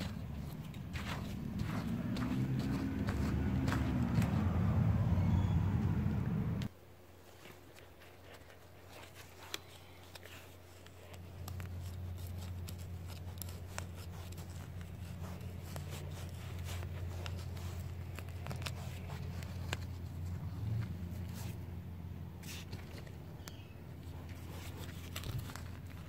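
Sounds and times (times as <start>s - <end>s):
low steady rumble: 0.0s - 6.7s
hands digging in dry soil: 0.0s - 26.0s.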